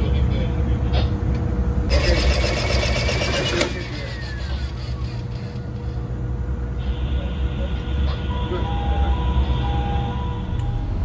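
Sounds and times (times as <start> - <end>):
rapid mechanical clicking: 1.9 - 6.0
ship engine hum: 3.5 - 7.1.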